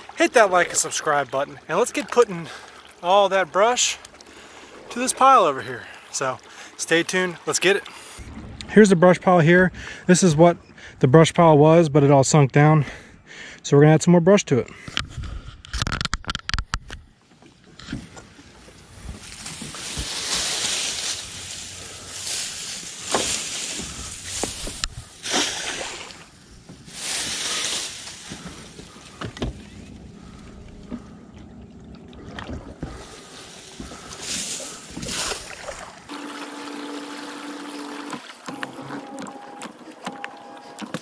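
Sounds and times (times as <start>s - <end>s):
branches rustling and splashing: 17.5s - 40.8s
electric motor hum: 36.1s - 41.0s.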